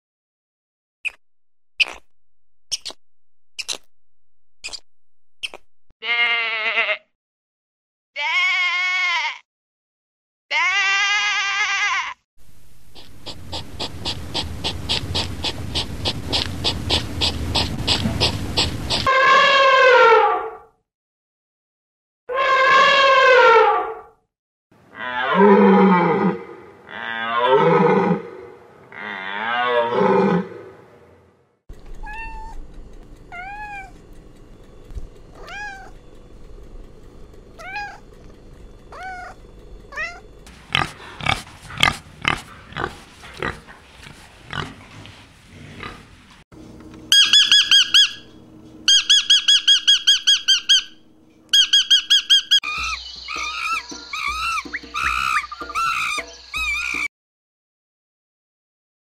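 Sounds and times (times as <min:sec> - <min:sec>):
cat mewing: 0:08.2 - 0:09.4, 0:10.5 - 0:12.2, 0:32.0 - 0:32.6, 0:33.3 - 0:34.0, 0:35.3 - 0:36.0, 0:37.6 - 0:38.2, 0:38.9 - 0:40.3
lovebird chirping: 0:47.1 - 0:48.2, 0:48.9 - 0:57.1
elephant calling: 0:47.1 - 0:48.3, 0:48.9 - 0:57.1.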